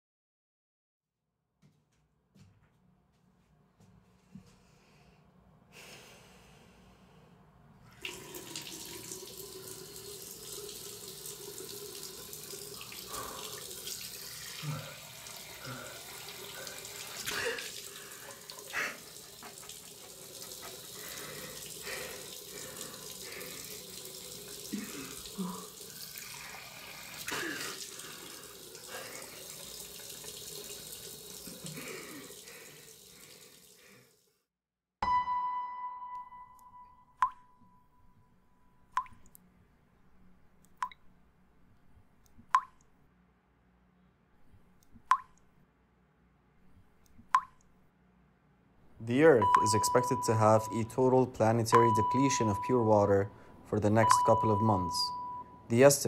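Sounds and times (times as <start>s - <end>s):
tap water running into sink: 7.9s - 34.0s, 51.7s - 52.5s
water drip ringing: 8.0s - 26.5s, 36.1s - 37.8s, 38.8s - 39.4s, 42.5s - 42.8s, 45.1s - 45.4s, 47.3s - 47.6s, 49.1s - 56.0s.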